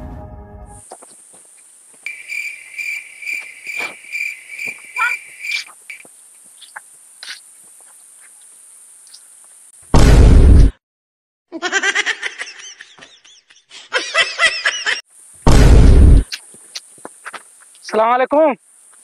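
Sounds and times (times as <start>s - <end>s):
crickets chirping: 0.8s - 9.9s, 14.0s - 15.5s, 16.2s - 19.0s.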